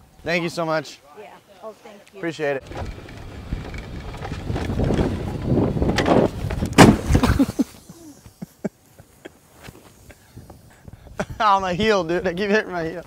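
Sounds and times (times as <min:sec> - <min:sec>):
golf cart rolling over dirt: 0:02.5 - 0:07.8
cart crashing into tree: 0:02.6 - 0:07.6.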